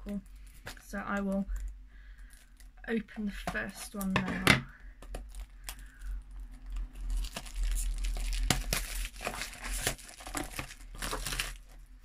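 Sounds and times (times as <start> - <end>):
wrapping torn and crinkled: 5.1 - 12.0.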